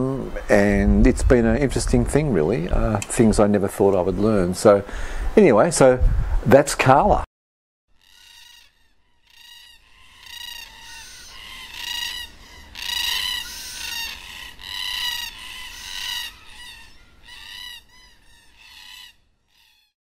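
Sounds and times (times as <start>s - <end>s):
cockatoo squawking: 8.0s - 19.9s.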